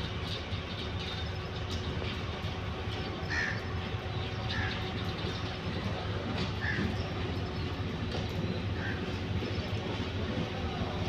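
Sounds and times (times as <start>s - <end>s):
distant diesel locomotive rumble: 0.0s - 11.0s
crow cawing: 3.3s - 3.6s, 6.6s - 6.8s.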